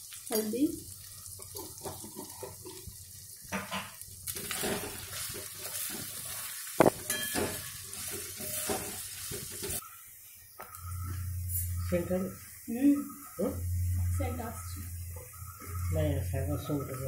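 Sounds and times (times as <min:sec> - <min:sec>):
onions sizzling in hot oil: 0:00.0 - 0:17.0
metal spatula scraping pan: 0:04.4 - 0:09.8.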